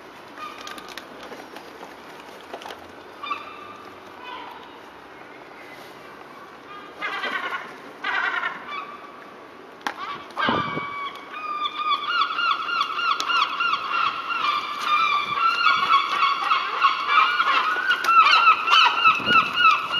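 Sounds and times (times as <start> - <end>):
gulls squawking: 3.2 - 4.9, 6.6 - 9.3, 9.9 - 19.9.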